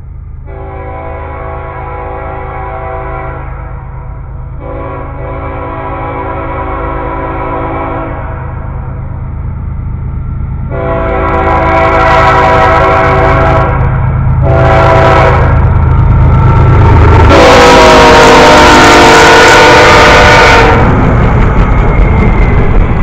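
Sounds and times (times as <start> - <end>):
diesel engines rumbling: 0.0 - 23.0
locomotive horn blasts: 0.5 - 4.0, 4.6 - 8.6, 10.7 - 15.6, 17.3 - 21.0.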